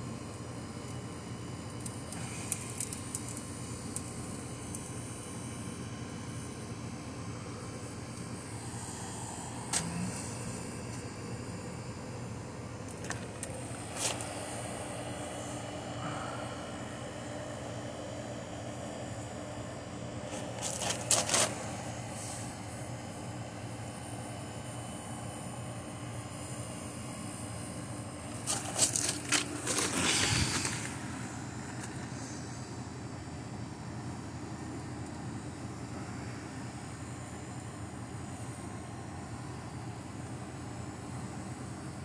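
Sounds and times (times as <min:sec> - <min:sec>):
condenser fans droning hum: 0:00.0 - 0:42.0
stick scraping burning cardboard: 0:01.9 - 0:04.1, 0:20.3 - 0:22.3, 0:28.3 - 0:32.4.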